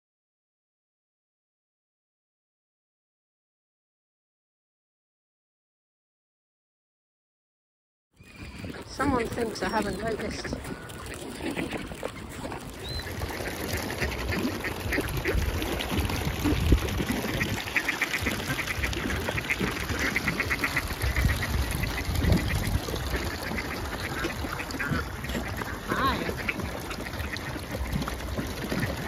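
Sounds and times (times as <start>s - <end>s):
ducks quacking: 8.2s - 29.0s.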